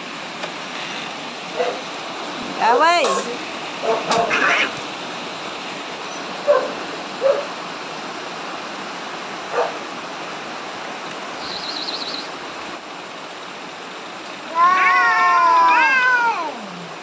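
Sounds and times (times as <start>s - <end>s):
steady background hiss: 0.0s - 17.0s
short animal cries: 4.1s - 4.8s.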